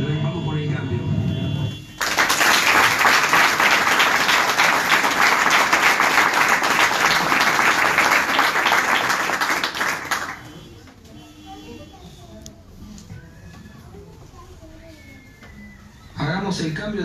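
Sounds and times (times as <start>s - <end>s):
audience applauding: 2.0s - 10.7s.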